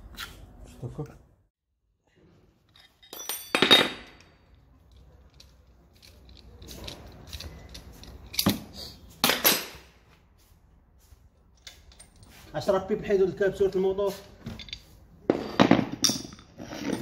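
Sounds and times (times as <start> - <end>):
metal tools clanking: 2.6 - 8.8, 13.6 - 17.0.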